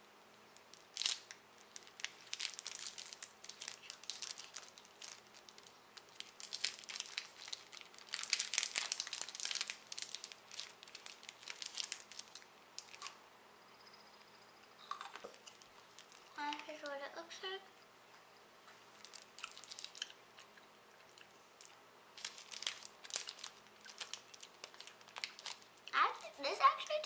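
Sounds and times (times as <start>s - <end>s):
wrapper crinkling and tearing: 0.6s - 13.2s, 15.0s - 16.4s, 19.0s - 20.2s, 21.1s - 27.0s.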